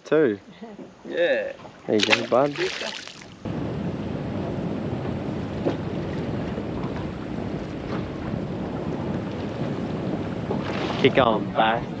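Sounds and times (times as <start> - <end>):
wind noise on microphone: 3.4 - 12.0.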